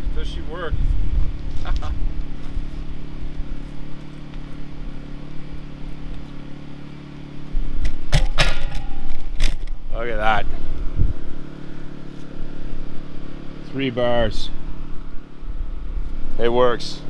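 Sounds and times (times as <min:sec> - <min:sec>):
low rumble on microphone: 0:00.0 - 0:03.9, 0:07.5 - 0:13.7
mechanical motor hum: 0:00.0 - 0:17.0
sharp knocks: 0:08.0 - 0:09.7.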